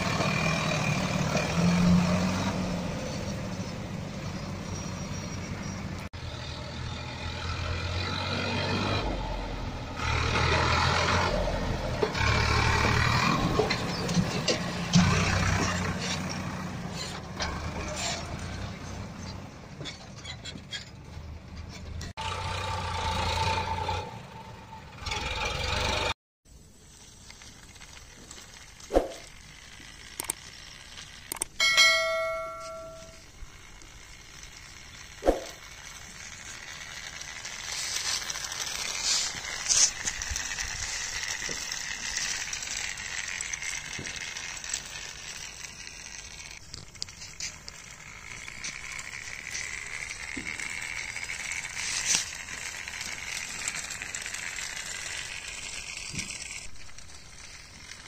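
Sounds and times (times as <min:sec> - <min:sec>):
toy tractor rolling over gravel: 0:00.0 - 0:58.0
sharp clicks: 0:28.9 - 0:31.6
short bell-like chime: 0:31.6 - 0:33.2.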